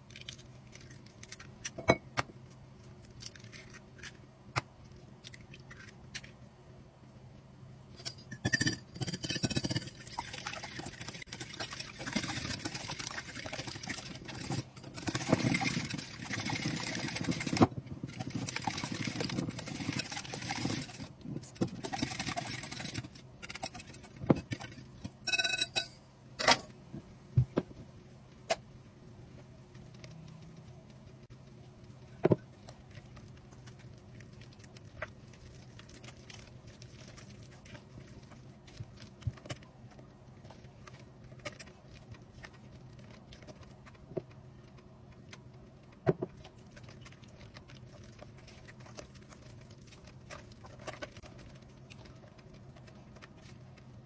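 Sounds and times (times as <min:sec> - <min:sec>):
whisk beating eggs in glass bowl: 0:08.1 - 0:25.9.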